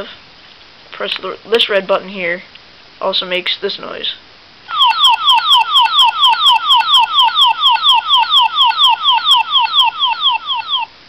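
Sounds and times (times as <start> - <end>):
toy electronic falling chirp: 4.7 - 10.9.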